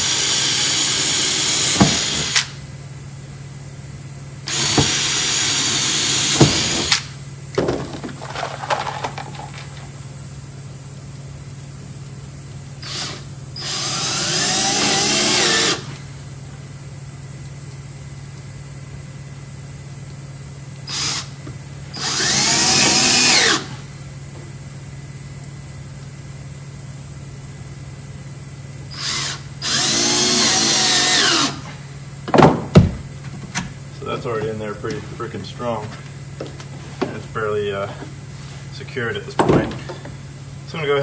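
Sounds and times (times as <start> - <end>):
cordless drill driving screws: 0.0 - 2.5, 4.5 - 7.0, 12.8 - 16.0, 20.9 - 21.3, 22.0 - 23.8, 28.9 - 31.7.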